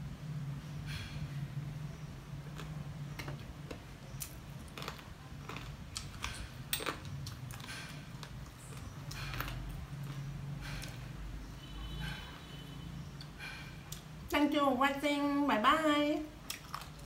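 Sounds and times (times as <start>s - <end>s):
person chewing and lip-smacking: 2.4s - 11.1s, 16.4s - 17.0s.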